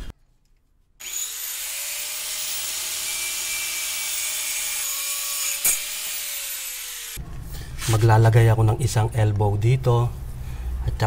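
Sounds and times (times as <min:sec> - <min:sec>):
angle grinder cutting pipe: 0:01.0 - 0:07.2.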